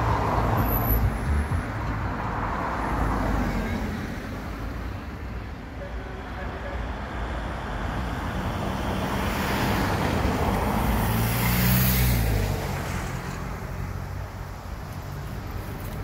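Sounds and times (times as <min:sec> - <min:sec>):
another car passing: 0:08.9 - 0:14.0.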